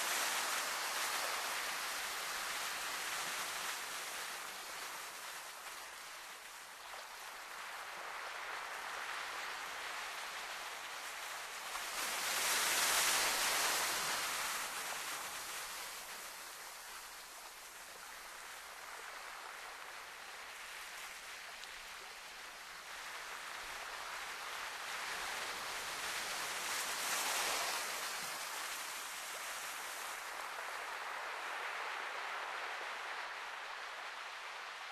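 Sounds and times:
surf washing on rocky shore: 0:07.4 - 0:19.9, 0:23.0 - 0:34.9.

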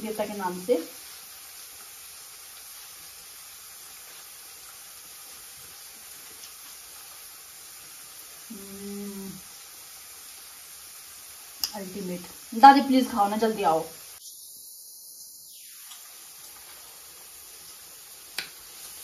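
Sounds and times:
gas stove hiss: 0:00.0 - 0:19.0
person humming: 0:08.5 - 0:09.4.

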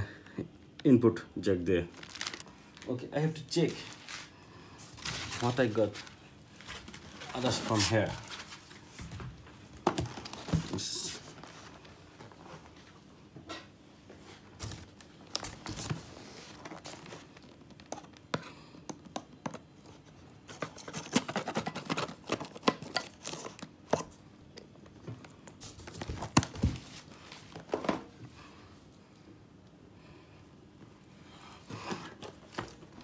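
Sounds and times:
cardboard scraping and rustling: 0:20.0 - 0:23.6.

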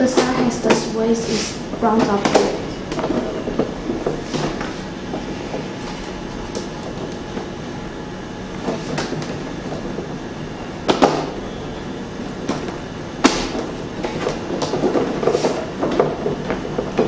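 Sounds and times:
plastic panels scraping: 0:00.0 - 0:07.6, 0:12.3 - 0:17.0
rustling handling noise: 0:00.0 - 0:07.7, 0:12.3 - 0:17.0.

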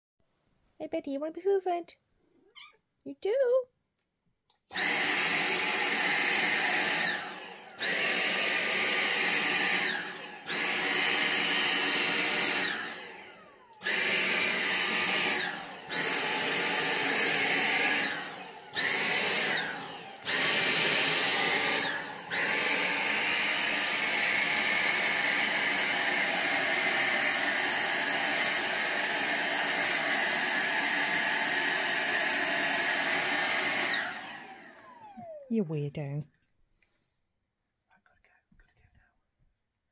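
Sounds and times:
vacuum cleaner motor whining: 0:04.7 - 0:35.5.

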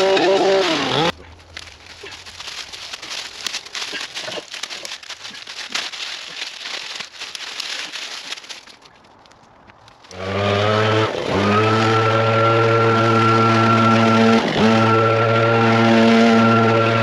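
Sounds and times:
leaf blower engine running: 0:00.0 - 0:01.2, 0:10.1 - 0:17.0
dry leaves and sticks crackling: 0:00.0 - 0:17.0.

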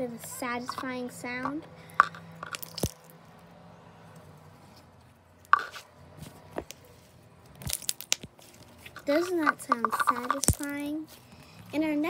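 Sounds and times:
slime popping and squishing: 0:02.4 - 0:03.1, 0:07.5 - 0:10.9.

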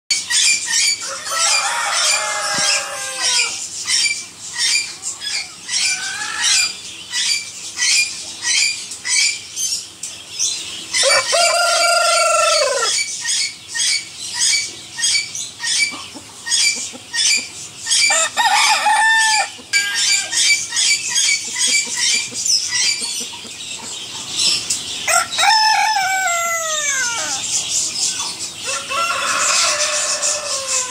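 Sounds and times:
chickens calling: 0:00.1 - 0:30.9
rooster crowing: 0:01.0 - 0:03.6, 0:11.0 - 0:12.9, 0:18.1 - 0:20.4, 0:25.1 - 0:27.4, 0:28.6 - 0:30.9.

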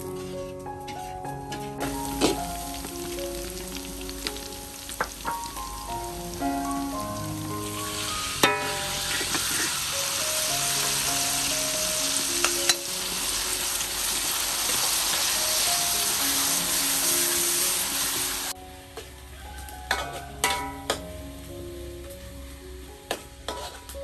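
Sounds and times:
garlic sizzling in hot oil: 0:01.8 - 0:24.0
spatula stirring in wok: 0:08.4 - 0:11.1, 0:23.4 - 0:24.0.

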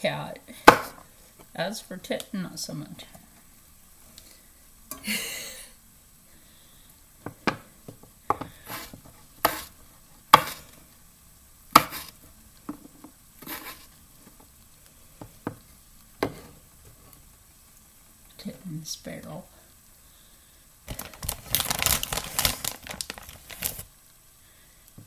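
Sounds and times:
scraping rustles: 0:13.4 - 0:14.0.

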